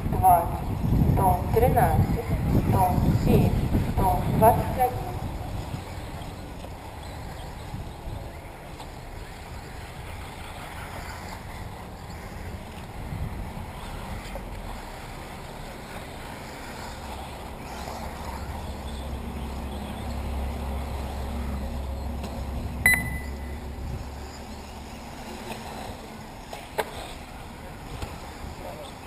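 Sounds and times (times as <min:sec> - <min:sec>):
electric rc cars running: 0:00.0 - 0:22.8, 0:23.5 - 0:29.0
wind rumbling on microphone: 0:00.0 - 0:26.5
short electronic beep: 0:22.8 - 0:23.6.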